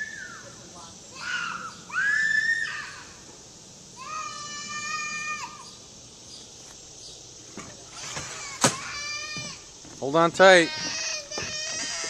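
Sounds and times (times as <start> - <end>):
child squealing: 1.1 - 3.2, 4.0 - 5.7, 7.9 - 9.7, 10.6 - 12.0.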